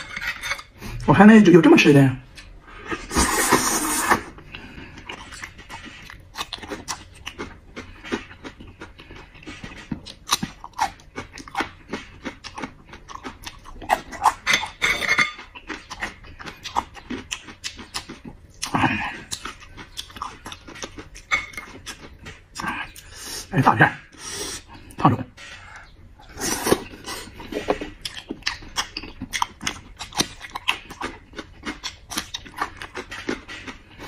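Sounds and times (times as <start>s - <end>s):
wet chewing and lip-smacking: 4.9s - 14.4s, 15.4s - 23.1s, 26.2s - 34.0s.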